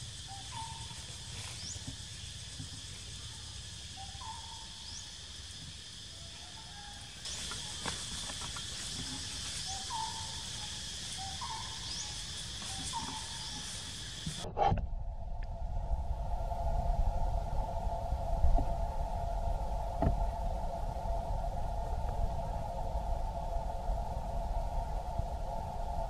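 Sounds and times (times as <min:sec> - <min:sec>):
bird hooting call: 0:00.0 - 0:01.9, 0:03.9 - 0:05.2, 0:06.2 - 0:14.5
insect drone: 0:00.0 - 0:26.0.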